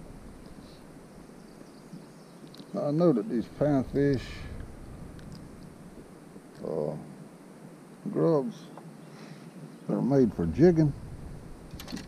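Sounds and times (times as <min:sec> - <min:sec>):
wind rumble on microphone: 0:03.5 - 0:06.1, 0:10.4 - 0:12.0.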